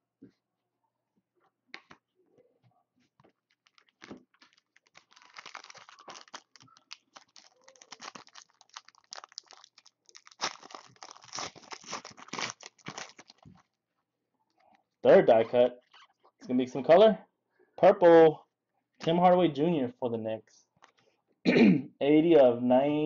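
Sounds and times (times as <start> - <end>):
foil wrapper crinkling and tearing: 3.5 - 13.7.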